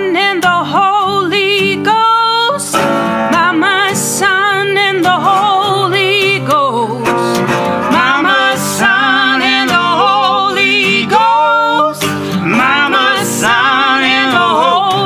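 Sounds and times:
guitar: 0.0s - 15.0s
person singing wordless notes: 5.4s - 15.0s.

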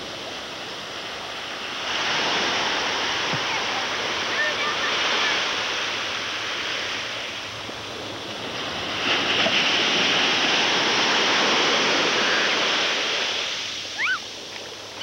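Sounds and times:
ocean surf washing: 0.0s - 15.0s.

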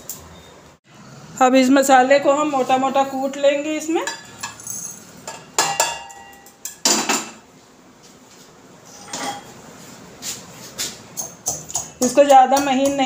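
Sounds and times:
metal pan clanking on steel cup: 5.3s - 7.4s.

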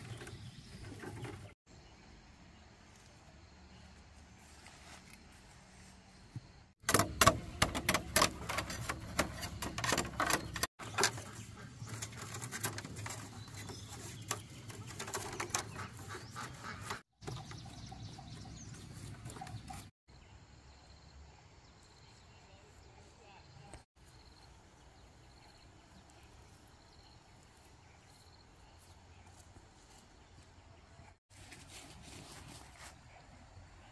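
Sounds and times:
bamboo strips rustling and clicking: 6.8s - 17.4s.

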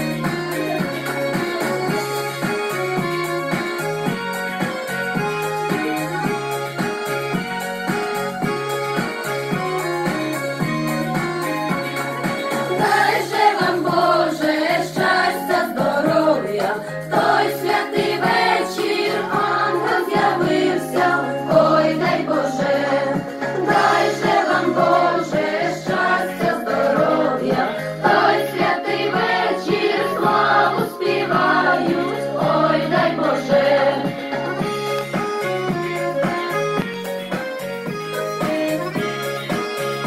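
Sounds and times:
group singing a carol: 12.8s - 34.3s.

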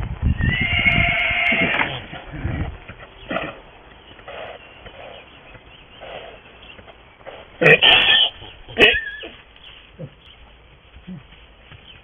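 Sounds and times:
pony whinnying: 0.4s - 2.7s, 7.6s - 9.4s
ponies jostling on straw: 8.4s - 12.0s.

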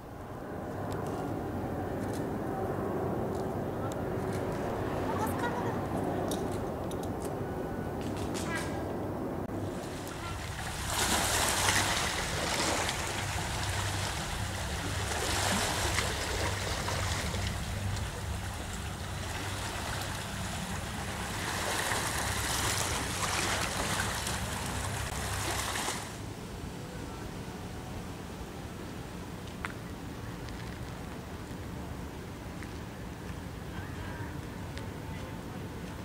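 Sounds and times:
low wind rumble: 0.0s - 36.0s
waves washing over rocky shore: 9.6s - 26.2s.

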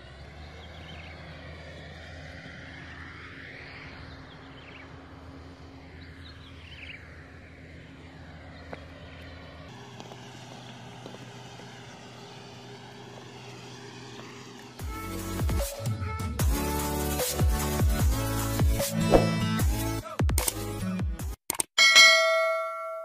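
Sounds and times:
distant excavator diesel engine hum: 0.0s - 15.6s.

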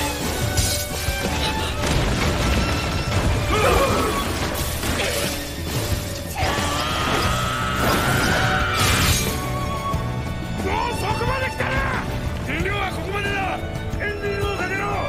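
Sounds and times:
crashing and shattering debris: 0.0s - 9.8s
dramatic background music: 0.0s - 15.0s.

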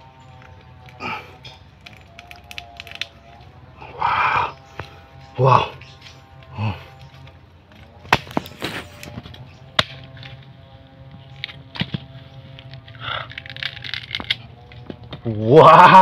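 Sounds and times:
machete chopping husks: 6.6s - 10.5s, 11.3s - 15.4s.

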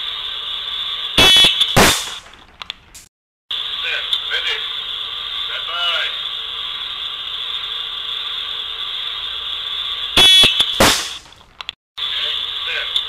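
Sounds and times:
high-pitched whine: 3.5s - 11.3s
loud ringing hit: 10.2s - 11.3s.

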